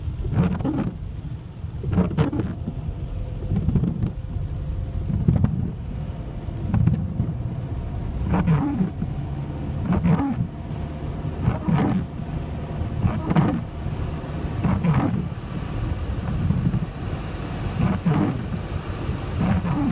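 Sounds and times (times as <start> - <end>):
tyres and rain rumbling on car: 0.0 - 19.9
windscreen wipers swishing: 0.0 - 19.9.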